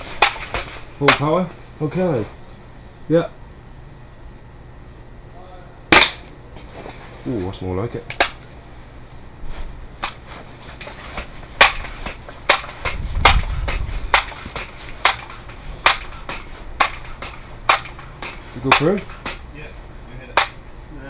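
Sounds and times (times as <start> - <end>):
air rifle clicks and knocks: 11.6 - 19.4.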